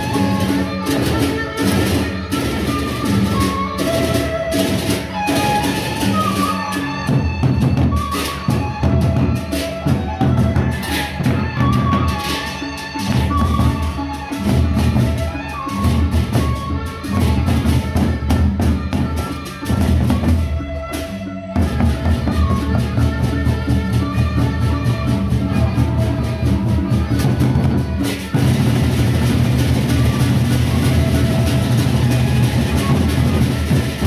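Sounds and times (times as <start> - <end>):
barrel drums beaten with sticks: 21.6 - 34.0.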